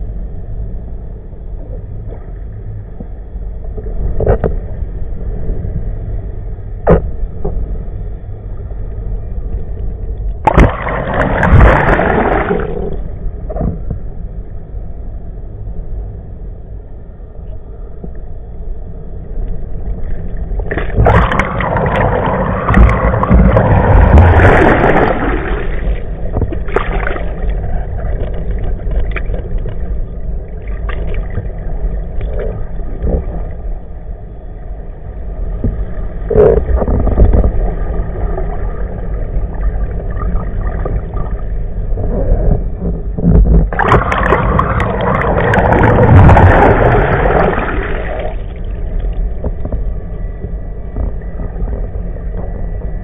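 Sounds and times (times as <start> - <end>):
faint steady whine: 0.0 - 53.0
steady low rumble: 0.0 - 53.0
water rushing and churning: 10.2 - 13.9, 19.8 - 34.4, 35.2 - 53.0.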